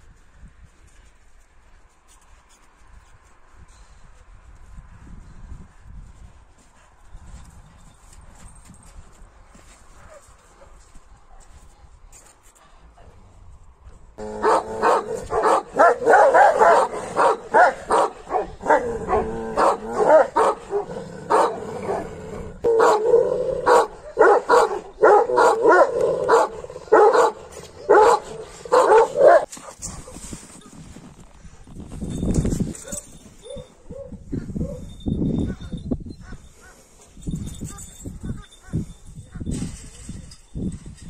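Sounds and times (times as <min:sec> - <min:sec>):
dogs barking loudly: 0:14.2 - 0:29.8.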